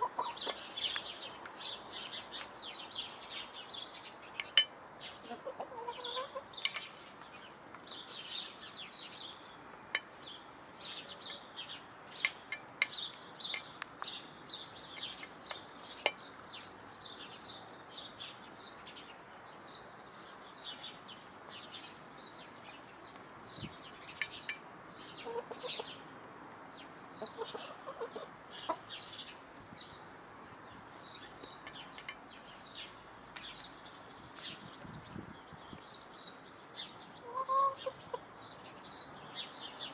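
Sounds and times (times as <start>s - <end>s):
hens clucking: 0.0s - 0.6s, 5.2s - 6.5s, 25.2s - 25.9s, 27.2s - 28.8s, 37.2s - 38.2s.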